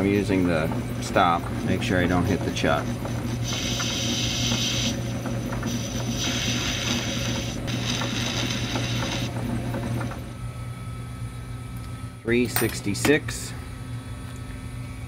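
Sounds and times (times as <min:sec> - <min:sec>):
lathe motor hum: 0:00.0 - 0:10.4
tool cutting metal hissing: 0:03.2 - 0:09.4.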